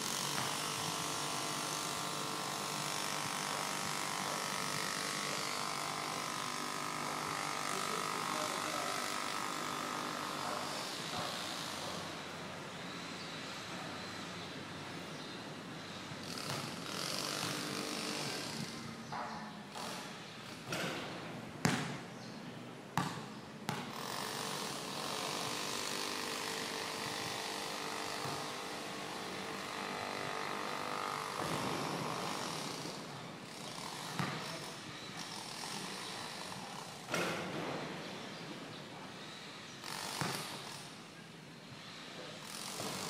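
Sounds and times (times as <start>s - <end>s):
basketball bouncing on concrete: 21.6s - 22.0s, 23.0s - 24.0s, 34.1s - 34.4s, 40.2s - 40.4s.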